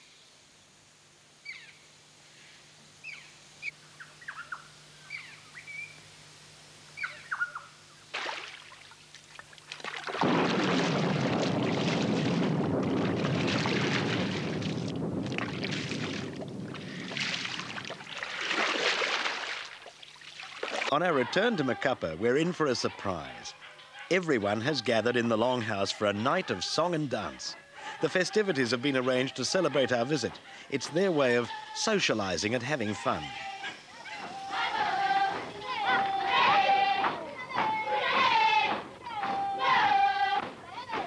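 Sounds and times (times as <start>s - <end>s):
birds chirping and whistling: 7.0s - 7.7s
rush of water: 8.1s - 9.0s, 9.7s - 21.0s.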